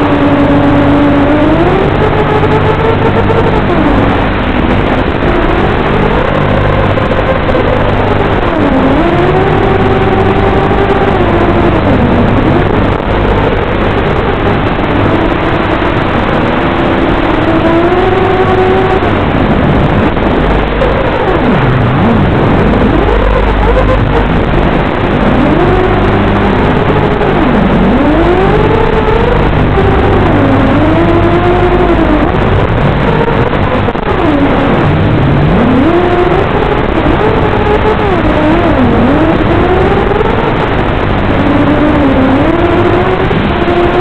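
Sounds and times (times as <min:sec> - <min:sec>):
quadcopter motors whining: 0:00.0 - 0:15.8, 0:20.3 - 0:33.5.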